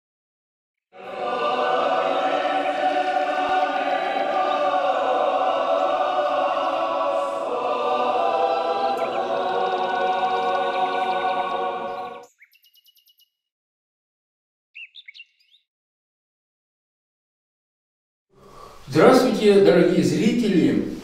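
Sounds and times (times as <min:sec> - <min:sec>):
choir singing a slow chant: 0:00.9 - 0:12.3.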